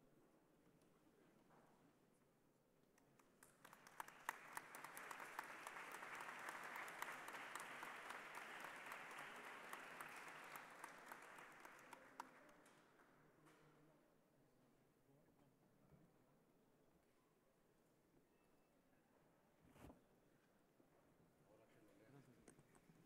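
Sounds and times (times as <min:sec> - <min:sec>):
faint applause: 0:03.4 - 0:13.2.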